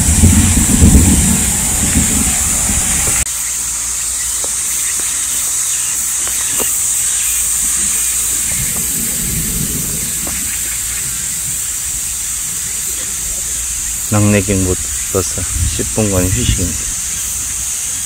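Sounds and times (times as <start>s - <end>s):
soft low rumble: 0.0s - 3.2s
thunder rumbling: 0.0s - 3.3s, 7.5s - 18.0s
steady high-pitched hiss: 0.0s - 18.0s.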